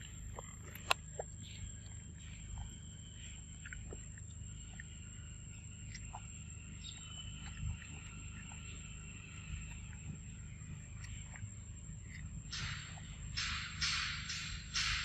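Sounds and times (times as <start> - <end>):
faint steady high tone: 0.0 - 13.8
low steady rumble: 0.0 - 15.0
wet chewing clicks: 0.0 - 15.0.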